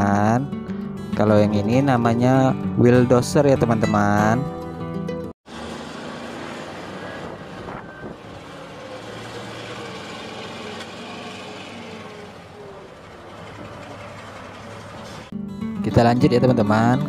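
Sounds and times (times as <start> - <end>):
wheel loader diesel engine running: 5.5 - 15.4.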